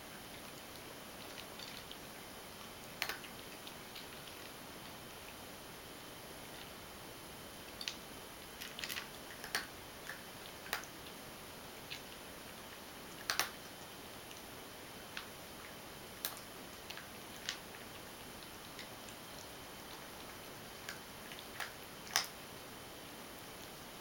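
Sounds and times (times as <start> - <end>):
cat crunching dry kibble: 8.6 - 11.1.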